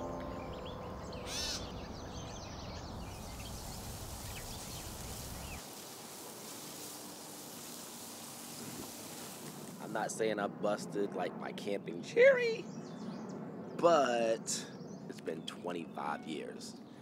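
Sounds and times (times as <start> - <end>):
harsh bird call: 0.0 - 2.5
birds chirping: 0.0 - 10.1, 11.6 - 17.0
background hiss: 2.8 - 10.2.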